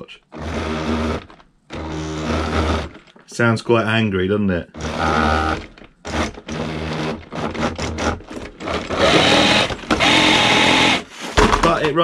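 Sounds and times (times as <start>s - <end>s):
toy car motor whining: 0.0s - 3.0s, 4.8s - 11.1s.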